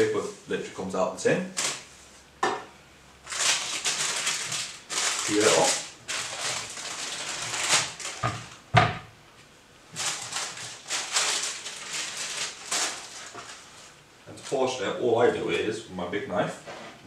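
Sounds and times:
parchment paper crackling: 3.2s - 8.6s, 9.9s - 14.8s.

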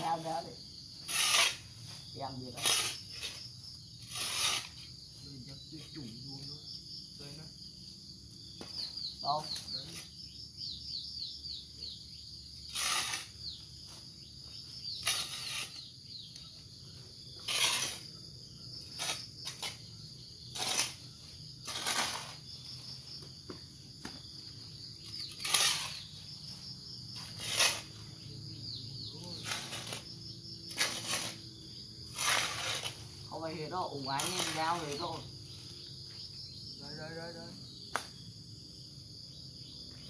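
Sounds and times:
insects chirping: 0.0s - 40.0s
hand hoe scraping soil: 1.0s - 5.0s, 12.6s - 14.1s, 15.0s - 15.8s, 17.4s - 18.2s, 18.9s - 19.8s, 20.5s - 22.5s, 25.0s - 26.2s, 27.2s - 28.1s, 29.4s - 30.1s, 30.7s - 31.5s, 32.1s - 33.2s.

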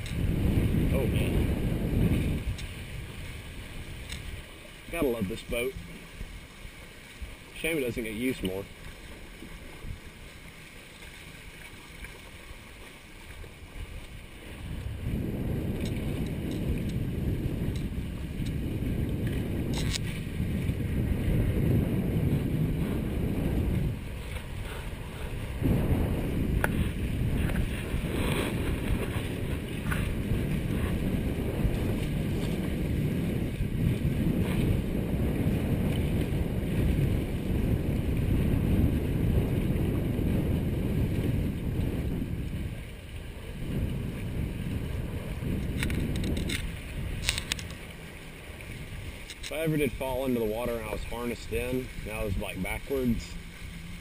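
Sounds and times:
water rushing along hulls: 0.0s - 54.0s
wind buffeting microphone: 0.0s - 54.0s.

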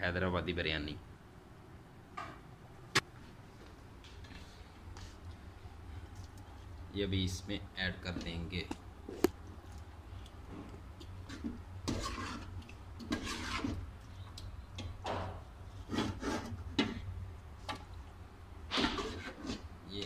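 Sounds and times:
steady low hum: 0.0s - 20.0s
metal scraping against pot: 10.5s - 13.9s, 15.7s - 17.1s, 18.7s - 19.7s.

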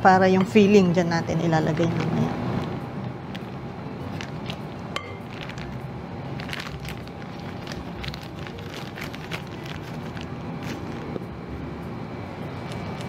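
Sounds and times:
low background hum: 0.0s - 13.0s
plastic bag crinkling: 2.0s - 11.3s, 12.5s - 13.0s.

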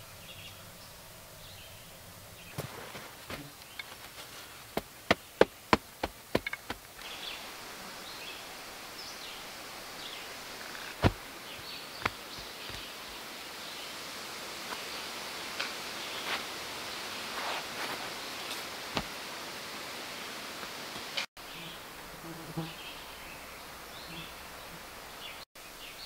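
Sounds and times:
insects buzzing: 0.0s - 26.0s
chopping strikes on wood: 4.8s - 6.8s, 11.0s - 11.2s.

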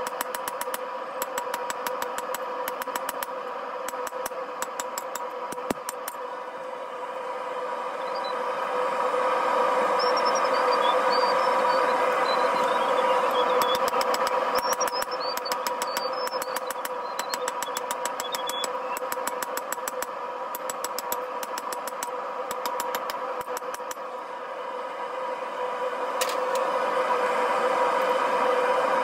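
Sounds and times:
gas forge burner drone: 0.0s - 29.0s.

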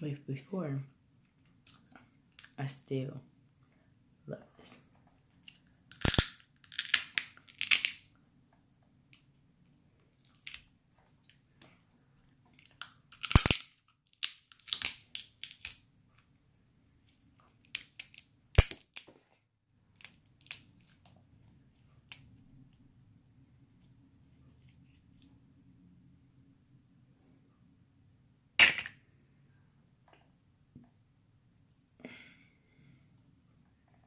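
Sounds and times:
crab shells cracking: 5.9s - 8.1s, 12.6s - 15.8s, 17.7s - 19.1s, 19.9s - 20.8s.

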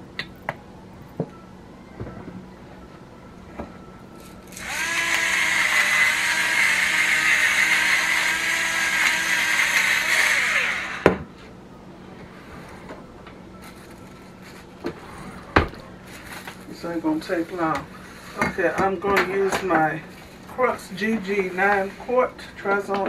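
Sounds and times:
electric pepper grinder whirring: 4.4s - 11.2s.

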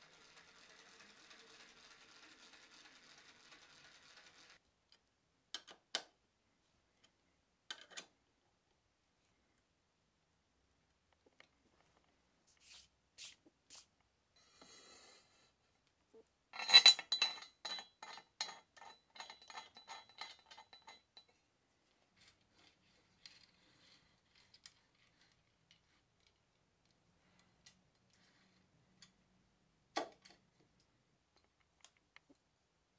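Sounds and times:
faint brushing swishes: 12.5s - 13.9s
metal pieces clinking: 16.6s - 21.3s.

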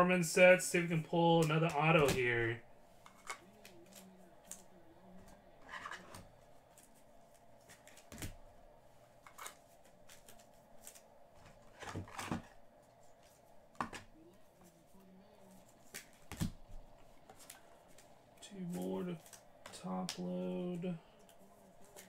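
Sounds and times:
card packaging rustles and clicks: 9.2s - 12.6s.

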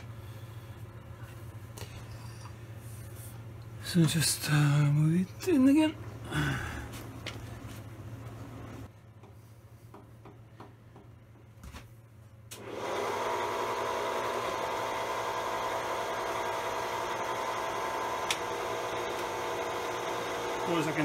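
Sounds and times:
electric motor whining: 12.6s - 21.0s.

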